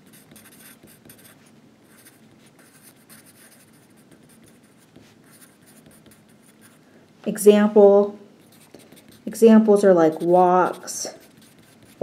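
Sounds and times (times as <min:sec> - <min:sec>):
pen scratching on paper: 0:00.0 - 0:06.8, 0:08.4 - 0:12.0.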